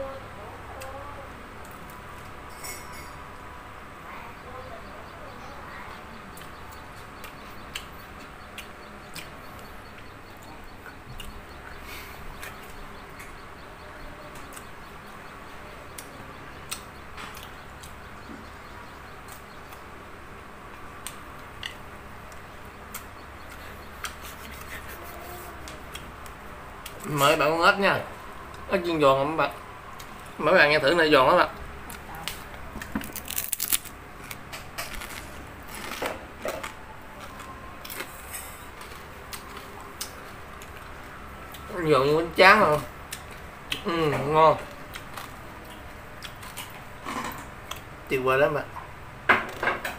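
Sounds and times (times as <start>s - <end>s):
crunching crispy food: 31.9s - 41.7s.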